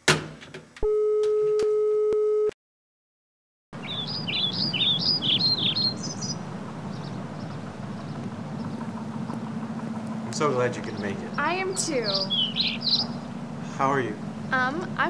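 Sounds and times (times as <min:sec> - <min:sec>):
steady telephone tone: 0:00.8 - 0:02.6
outdoor background noise: 0:03.8 - 0:15.0
small birds chirping: 0:03.8 - 0:15.0.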